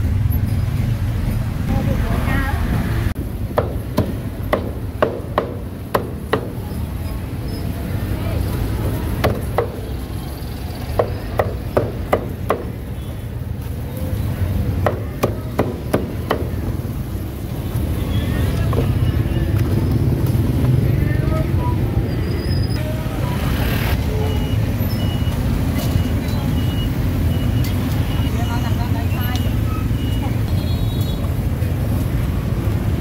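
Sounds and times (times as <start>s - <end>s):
cleaver chopping on wooden block: 3.6s - 6.6s.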